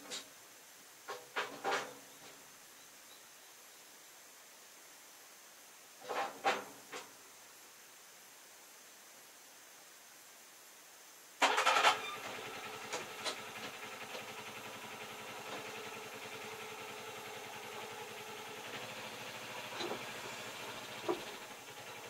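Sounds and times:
engine starting and running: 0:11.4 - 0:22.0.

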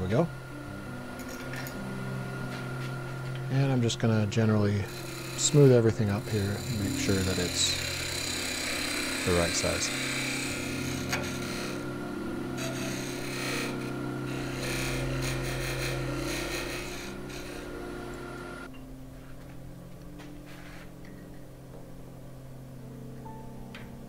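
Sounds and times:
lathe motor hum: 0:00.0 - 0:18.7
turning tool scraping wood: 0:04.1 - 0:11.9, 0:12.6 - 0:18.7.

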